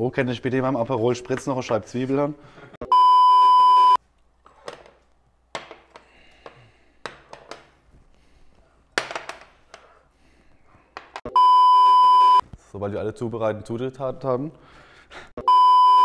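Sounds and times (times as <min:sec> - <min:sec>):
test-tone beep: 0:02.8 - 0:04.0, 0:11.3 - 0:12.4, 0:15.4 - 0:16.0.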